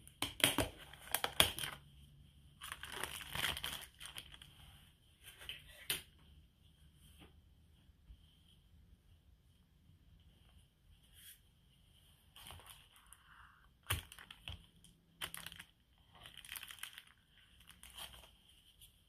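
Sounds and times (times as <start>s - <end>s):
crinkling and rustling: 2.5s - 5.9s, 10.2s - 19.0s.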